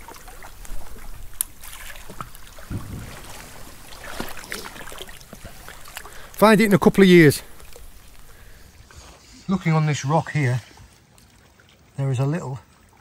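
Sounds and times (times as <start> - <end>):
seawater lapping on rocks: 0.0 - 13.0
low thud: 2.6 - 5.8.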